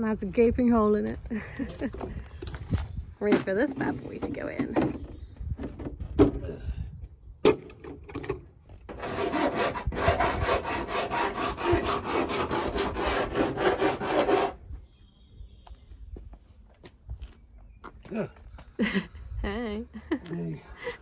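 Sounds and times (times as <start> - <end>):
file rasping on sheet metal: 8.9 - 14.6.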